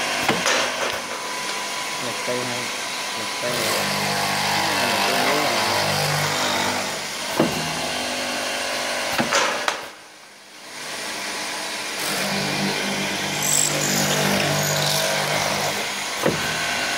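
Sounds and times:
drilling machine humming: 1.1s - 9.2s, 11.4s - 16.9s.

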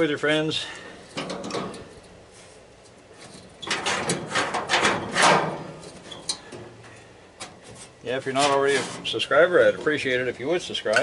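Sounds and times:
sheet metal scraping and clanking: 3.2s - 6.6s.

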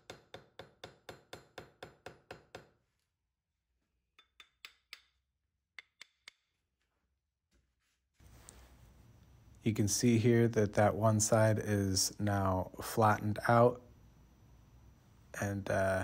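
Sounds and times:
hammer tapping pin on anvil: 4.2s - 5.2s, 5.8s - 6.5s.

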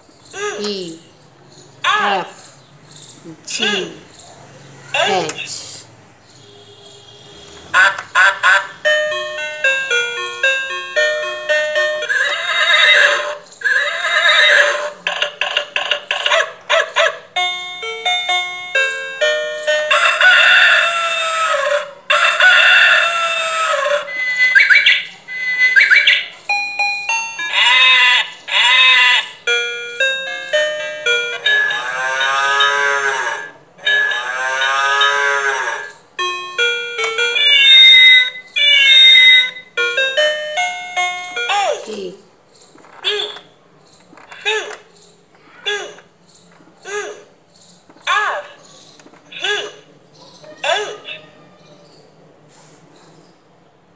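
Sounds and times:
recorded animal calls: 0.2s - 8.9s, 11.9s - 17.2s, 19.6s - 26.5s, 27.3s - 29.6s, 30.6s - 36.2s, 37.0s - 39.6s, 42.7s - 53.6s
toy beeping tune: 7.4s - 13.4s, 17.4s - 42.0s.

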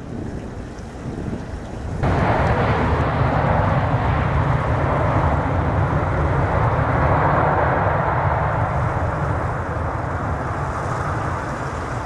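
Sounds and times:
jet engines rumbling: 1.1s - 12.0s.

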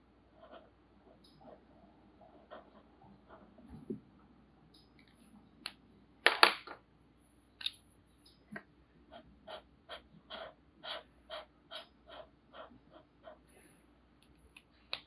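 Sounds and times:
marker scrubbing on paper: 9.1s - 13.4s.

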